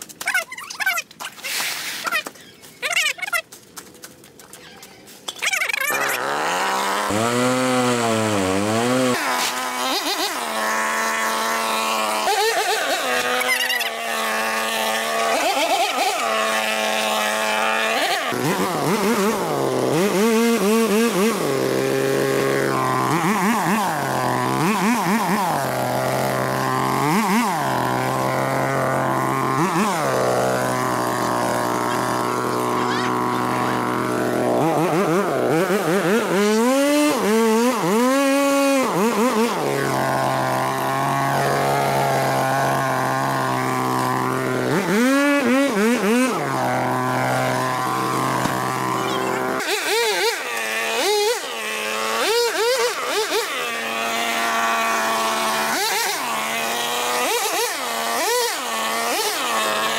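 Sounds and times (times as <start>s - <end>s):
small petrol engine revving: 5.3s - 59.9s.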